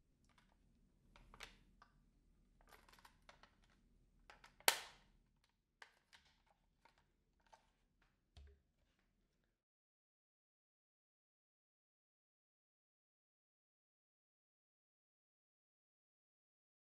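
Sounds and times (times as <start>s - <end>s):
plastic parts clicking and rattling: 2.6s - 8.5s
sharp plastic snap click: 4.7s - 4.9s.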